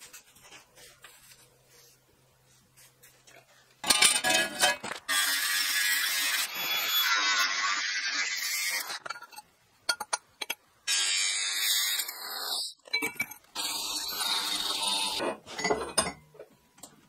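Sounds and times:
angle grinder cutting steel: 5.1 - 9.0, 13.6 - 15.2.

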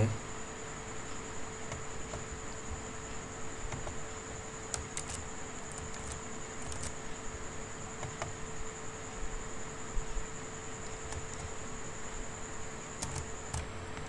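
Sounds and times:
low electrical hum: 0.0 - 14.0
mouse and keyboard clicks: 4.8 - 7.0.

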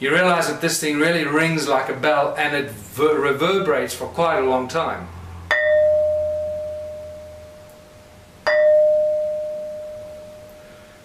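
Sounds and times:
ringing stone struck: 5.5 - 10.6.

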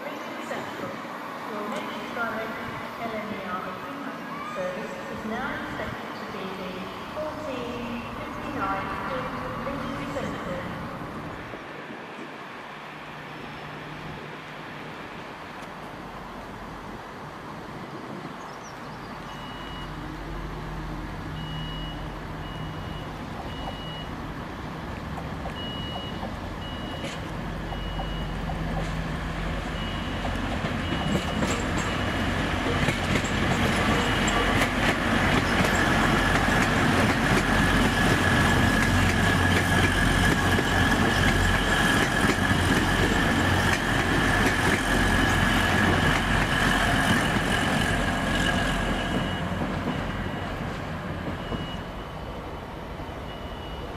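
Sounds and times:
diesel train engine rumble: 0.0 - 53.9
short high beeps: 19.3 - 19.9.

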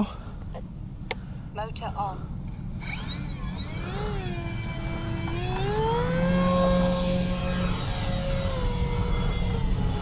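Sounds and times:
electric propeller motors whining: 2.6 - 10.0.

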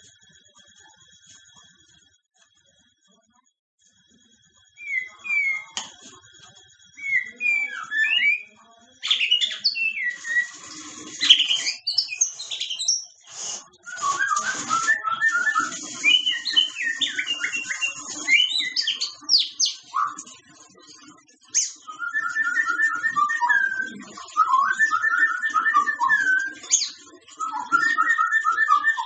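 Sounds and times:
bird singing: 4.8 - 6.0, 6.9 - 13.2, 13.8 - 20.4, 21.5 - 29.0.

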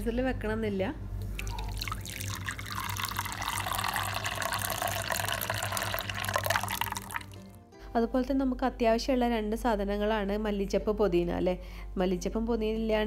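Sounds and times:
liquid pouring into glass bowl: 1.3 - 7.6.

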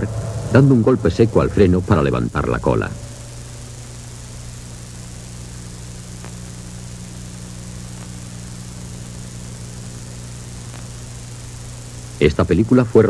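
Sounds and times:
low electrical hum: 0.0 - 13.0
tape hiss: 0.0 - 13.0
faint clicks: 6.1 - 6.8, 10.6 - 11.5.

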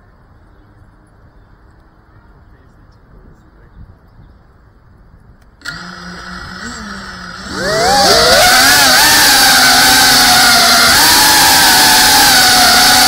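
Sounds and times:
quadcopter motors whining: 5.4 - 13.0.

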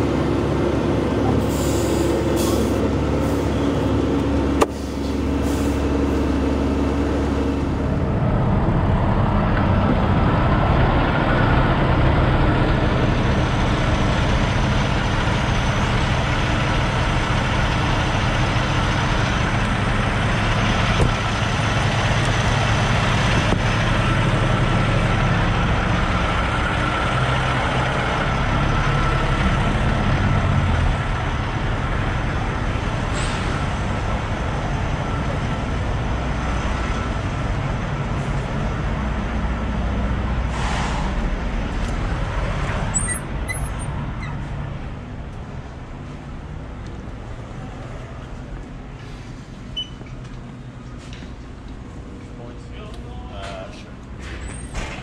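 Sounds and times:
diesel truck engine idling: 0.0 - 40.5.

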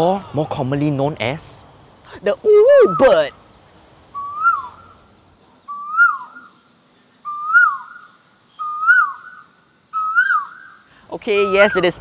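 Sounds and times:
koel calling: 2.5 - 3.4, 4.2 - 5.0, 5.7 - 6.6, 7.2 - 9.4, 10.0 - 12.0.

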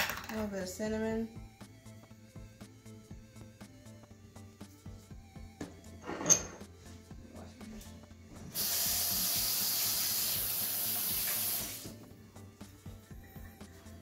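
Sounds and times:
tap water running: 8.5 - 12.1.

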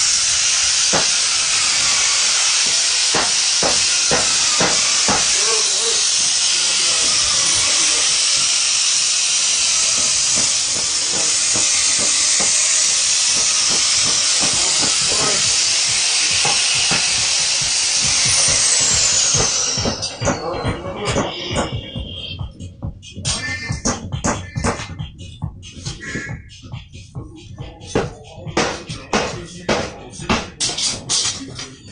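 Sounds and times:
loud steady hiss: 0.0 - 19.7
high whine falling in pitch: 15.0 - 30.4.

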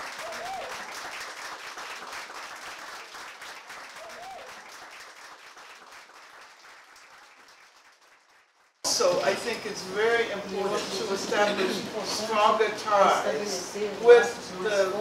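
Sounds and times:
people applauding: 0.0 - 9.1.

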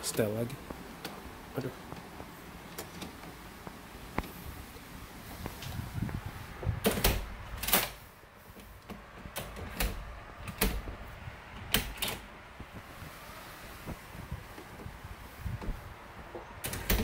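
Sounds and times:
door lock latch clicking: 9.3 - 10.9, 11.6 - 12.3.

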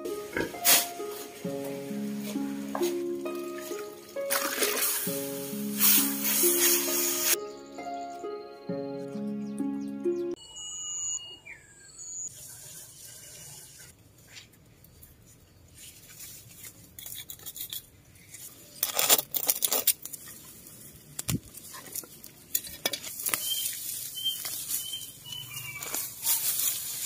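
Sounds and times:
rustling leaves and soil: 0.2 - 7.4, 12.3 - 17.2, 17.9 - 27.0
birds chirping: 6.6 - 12.3, 23.4 - 26.4.

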